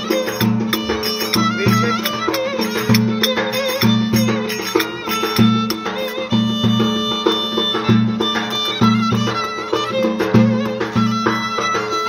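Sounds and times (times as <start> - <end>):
bowed fiddle melody: 0.0 - 12.0
large drum beat: 0.0 - 12.0.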